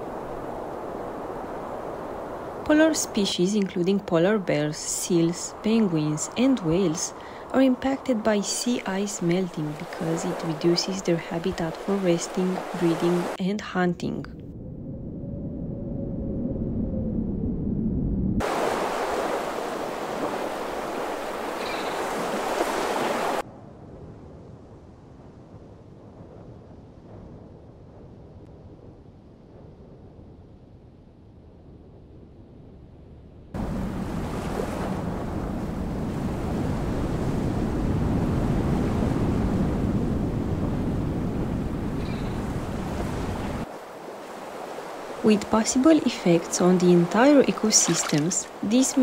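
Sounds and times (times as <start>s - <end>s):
rushing water: 0.0s - 13.4s, 18.4s - 23.4s, 42.2s - 49.0s
waves on a shore: 0.0s - 13.4s, 18.4s - 23.4s, 33.6s - 49.0s
wind: 0.0s - 49.0s
low rumble: 14.3s - 18.4s.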